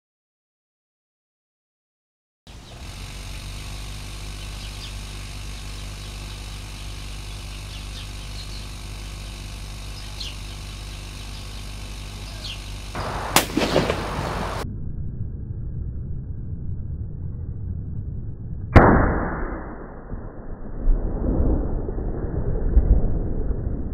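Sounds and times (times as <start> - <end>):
air pump humming: 2.5 - 14.6
loud rough noise: 2.5 - 14.6.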